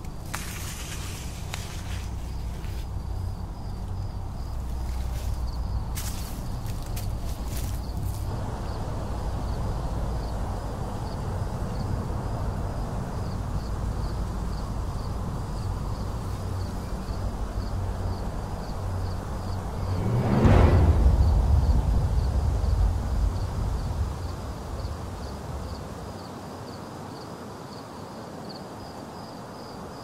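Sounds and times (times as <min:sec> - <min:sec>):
insect chirping: 0:00.0 - 0:30.0
low rumble: 0:00.2 - 0:26.2
rushing swell: 0:16.0 - 0:26.2.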